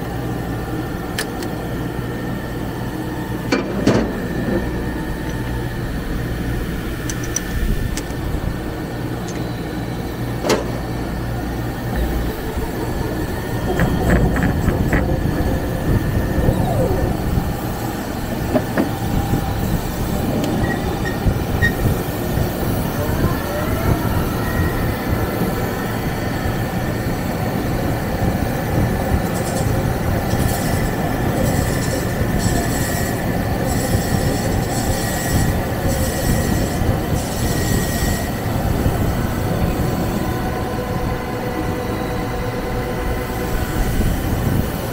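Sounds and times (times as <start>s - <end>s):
lathe squealing whine: 1.7s - 44.9s.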